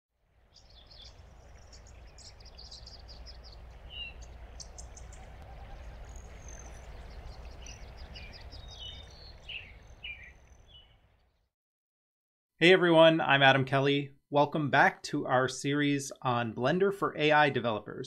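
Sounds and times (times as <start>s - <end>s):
low rumble of wind: 0.2s - 11.4s
small birds chirping: 0.4s - 11.5s.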